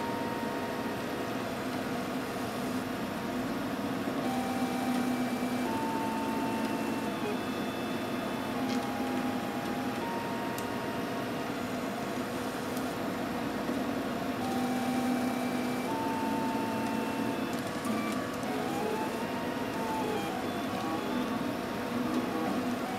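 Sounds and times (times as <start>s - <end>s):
printer stepper motors whining: 4.2s - 13.5s, 14.1s - 22.9s.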